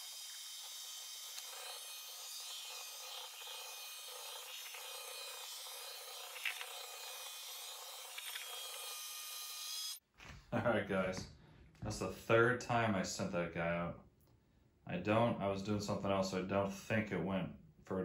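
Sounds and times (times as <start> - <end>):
robot vacuum whirring: 0.0 - 10.0.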